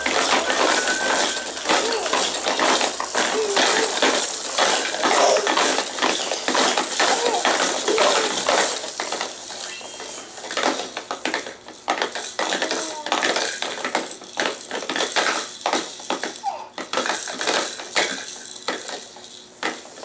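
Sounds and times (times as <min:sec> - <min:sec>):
plastic toys clicking and rattling: 0:00.0 - 0:20.0
baby vocal sounds: 0:01.6 - 0:02.4, 0:03.2 - 0:04.2, 0:04.8 - 0:05.9, 0:06.9 - 0:08.7, 0:12.6 - 0:13.4, 0:16.4 - 0:16.8.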